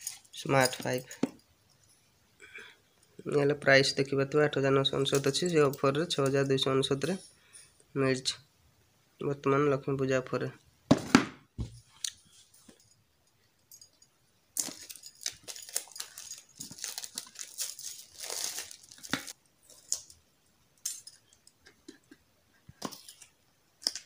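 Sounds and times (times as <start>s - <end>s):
plastic wrap tearing and crinkling: 14.6s - 19.4s.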